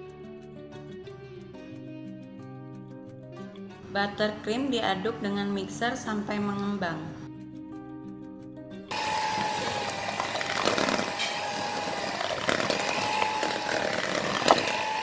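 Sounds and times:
electric hand mixer whine: 8.9s - 15.0s.

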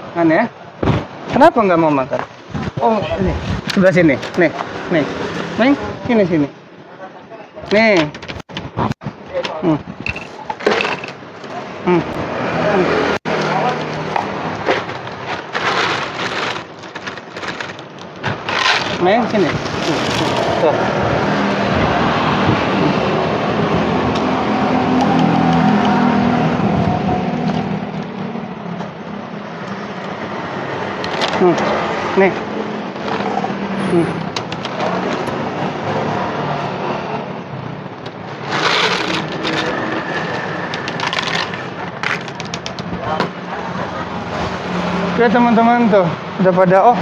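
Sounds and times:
thin plastic crinkling: 14.6s - 19.0s.

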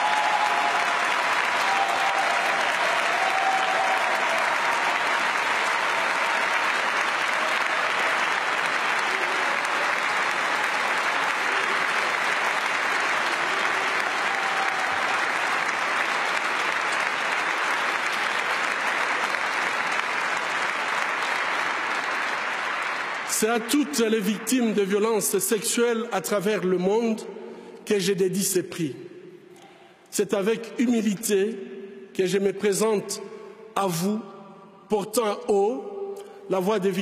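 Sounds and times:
audience applauding: 0.0s - 24.3s.

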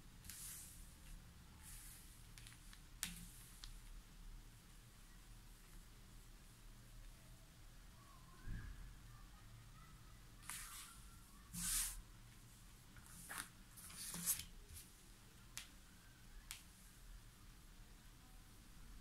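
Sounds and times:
cards dealt onto a table: 13.0s - 14.5s.

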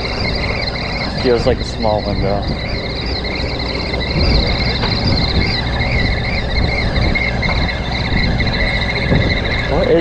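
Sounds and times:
boat engine rumble: 0.0s - 10.0s
wavering high whine: 0.0s - 10.0s.

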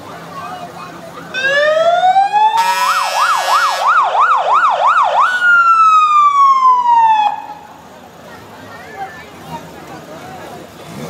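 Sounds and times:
emergency vehicle siren: 1.3s - 7.8s
horn blast: 2.6s - 4.0s.

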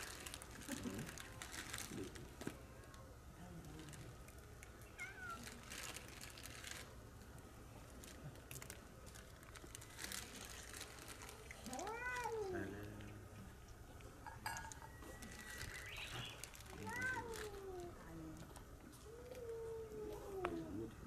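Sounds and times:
plastic bag rustling: 0.0s - 2.6s, 3.7s - 13.0s, 14.4s - 20.4s
cat meowing: 4.9s - 5.6s, 11.6s - 12.7s, 16.7s - 18.2s.

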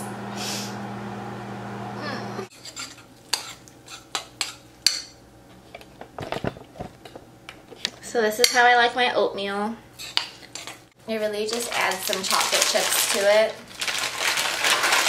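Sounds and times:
appliance hum: 0.0s - 15.0s
spoon scraping a bowl: 2.5s - 5.1s, 10.0s - 10.8s.

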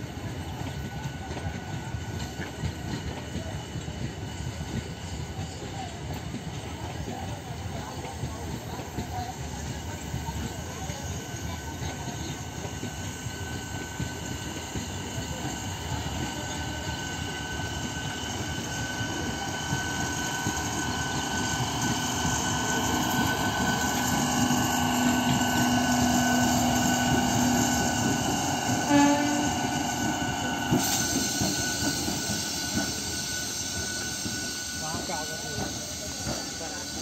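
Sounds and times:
train passing on rails: 0.0s - 37.0s
train horn toot: 26.8s - 30.6s.

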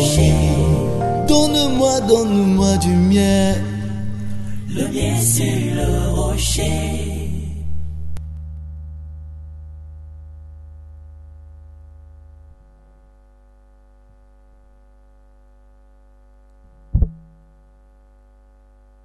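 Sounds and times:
low held synthesizer note: 0.0s - 13.2s
electrical hum: 0.0s - 19.0s
loud thump: 16.9s - 17.4s.

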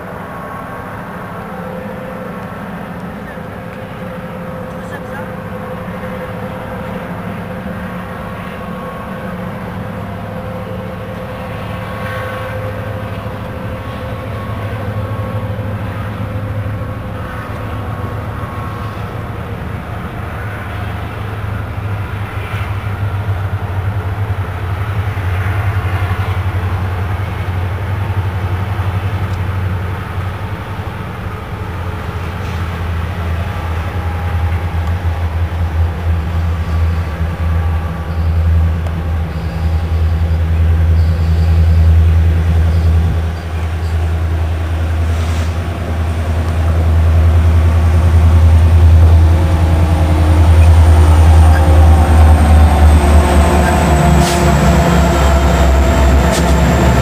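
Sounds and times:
diesel locomotive engine rumble: 0.0s - 57.0s.

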